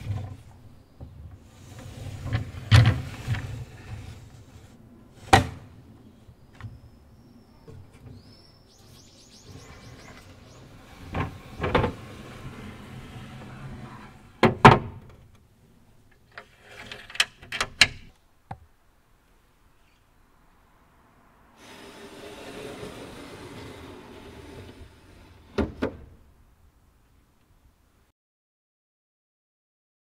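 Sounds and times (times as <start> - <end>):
wooden window panel sliding: 1.4 - 5.7, 9.5 - 15.0, 21.6 - 26.2.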